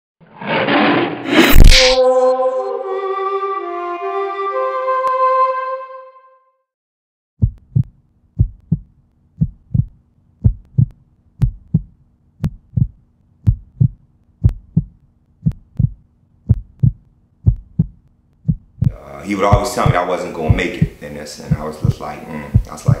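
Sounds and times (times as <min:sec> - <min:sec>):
heartbeat thumping: 0:07.4 - 0:23.0
faint steady hum: 0:07.6 - 0:23.0.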